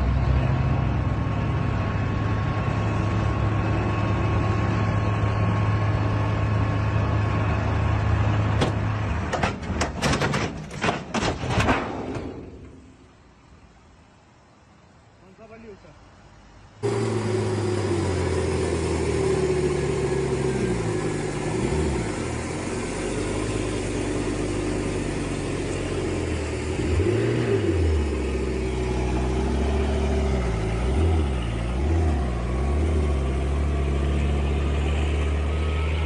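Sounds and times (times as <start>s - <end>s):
diesel truck engine revving: 16.8s - 36.0s.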